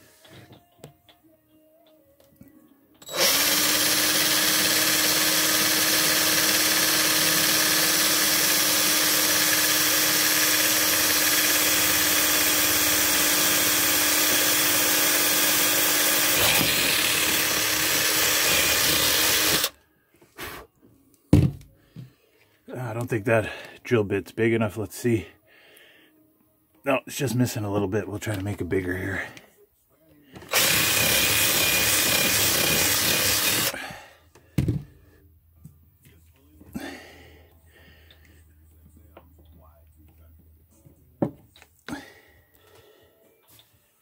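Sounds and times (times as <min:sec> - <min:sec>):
cordless drill drilling wood: 0:03.1 - 0:19.8, 0:30.4 - 0:33.8.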